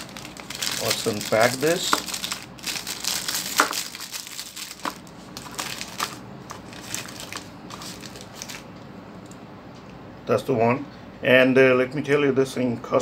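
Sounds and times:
plastic wrapping crinkling: 0.0 - 8.7.

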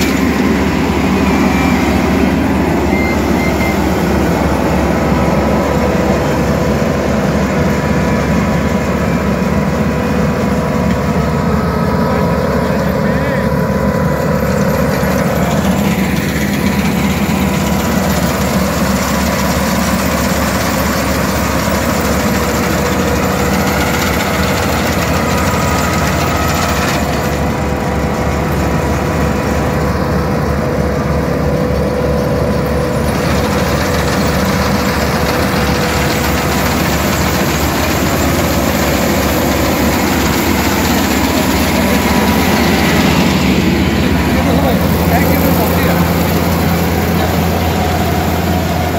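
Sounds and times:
combine harvester engine drone: 0.0 - 48.9.

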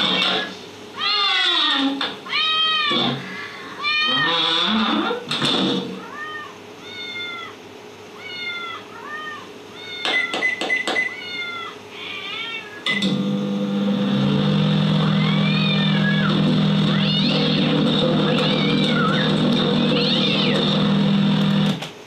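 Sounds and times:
cat meowing: 1.0 - 4.4, 6.0 - 7.6, 8.2 - 12.9, 15.0 - 20.8
microwave oven humming: 2.0 - 22.0.

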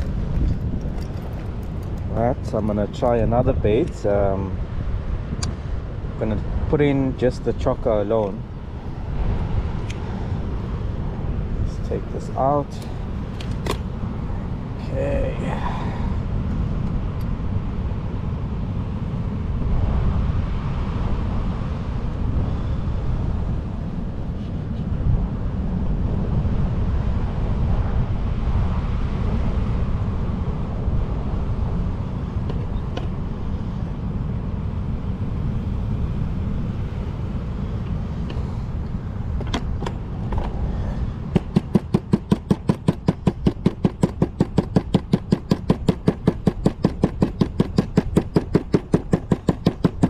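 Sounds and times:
wind and surf rumble: 0.0 - 50.0
knife chopping on plastic board: 41.4 - 50.0.

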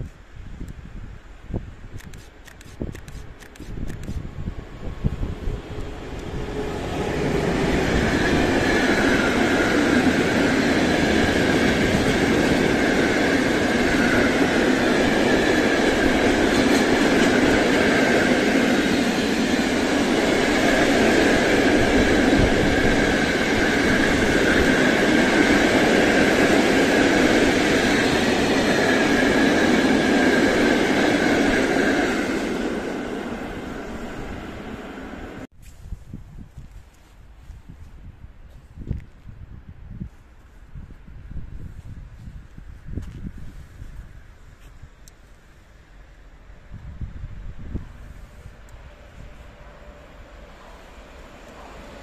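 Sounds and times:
train wheels rumbling on rail: 2.0 - 35.5.

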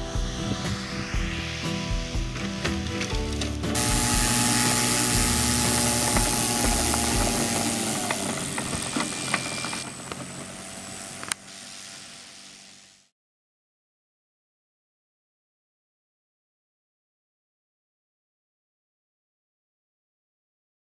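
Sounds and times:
model aeroplane engine running: 2.8 - 13.1.

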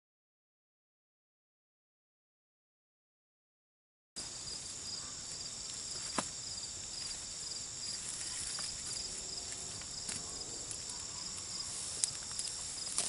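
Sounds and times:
insects buzzing and chirping: 4.2 - 13.0.

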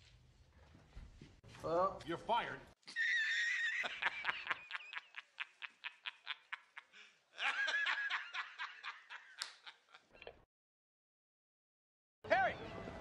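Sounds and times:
high-pitched cackling laughter: 2.9 - 10.1.

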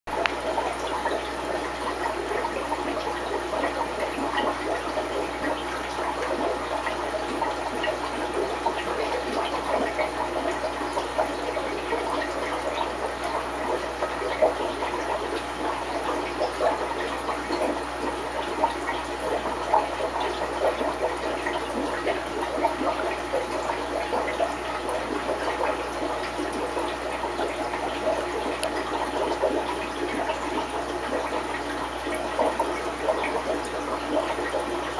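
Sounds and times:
aquarium water bubbling: 0.1 - 34.9
crackle of small pops: 28.6 - 28.8.

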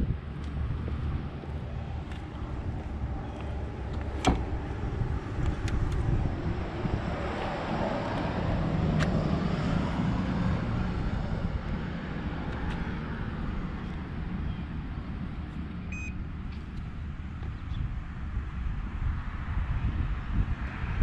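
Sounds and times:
steady low rumble: 0.0 - 21.0
card reader short high beep: 15.9 - 16.2.

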